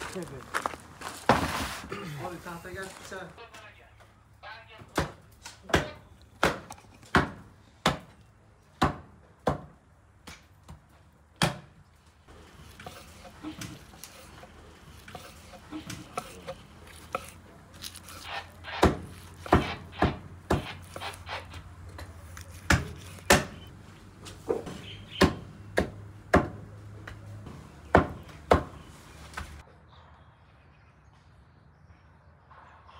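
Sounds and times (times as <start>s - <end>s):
knife chopping on wooden board: 5.0s - 8.1s, 12.7s - 21.5s, 22.3s - 23.7s, 24.5s - 27.2s, 27.9s - 28.8s
knife chopping on cutting board: 15.0s - 21.4s, 22.4s - 23.7s.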